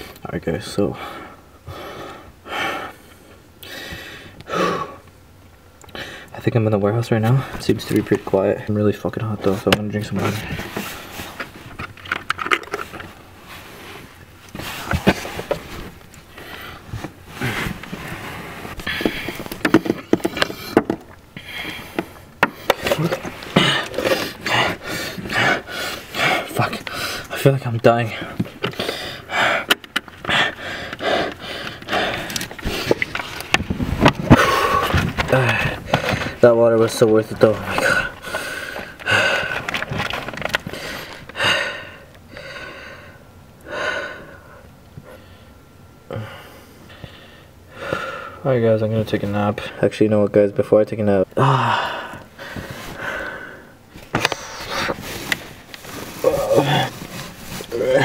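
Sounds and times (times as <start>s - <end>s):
heavy breaths: 0.8s - 5.2s, 5.9s - 6.4s, 10.2s - 48.5s, 51.4s - 58.0s
plastic jug clicking and knocking: 19.0s - 21.2s, 38.9s - 40.7s.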